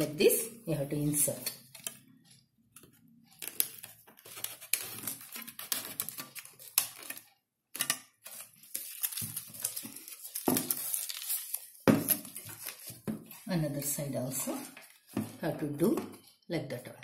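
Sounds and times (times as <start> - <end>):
plastic scraping against cardboard: 3.4 - 7.2.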